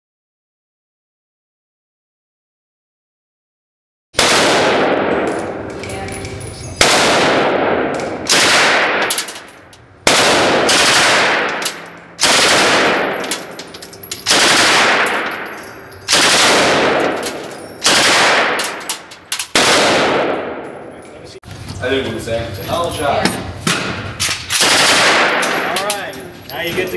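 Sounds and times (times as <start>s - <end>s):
submachine gun full-auto bursts: 10.1s - 11.4s, 12.2s - 13.0s, 14.3s - 15.0s, 16.1s - 17.0s, 17.8s - 18.4s.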